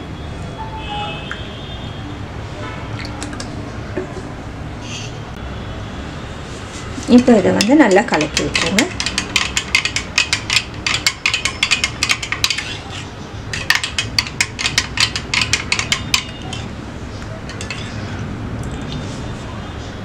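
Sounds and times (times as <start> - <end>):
spoon clinking in glass: 17.5 - 18.0.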